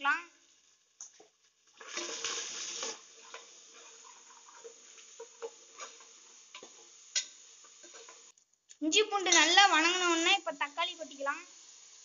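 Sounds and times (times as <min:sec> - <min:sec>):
onions sizzling in oil: 0:00.0 - 0:12.0
loud hiss: 0:09.7 - 0:12.0.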